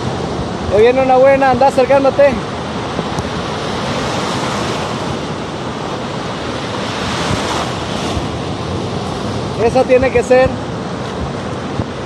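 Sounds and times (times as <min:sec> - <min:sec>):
ocean surf breaking: 0:00.0 - 0:12.0.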